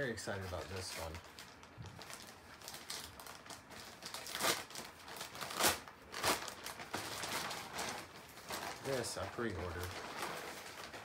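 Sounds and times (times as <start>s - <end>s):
packaging crinkling and rustling: 0.0s - 11.0s.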